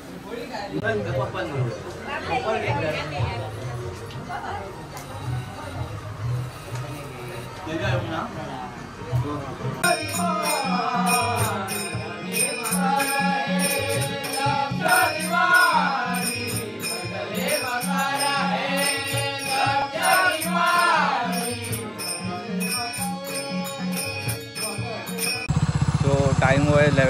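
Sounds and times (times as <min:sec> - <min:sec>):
men singing devotional song: 0:09.7 - 0:25.4.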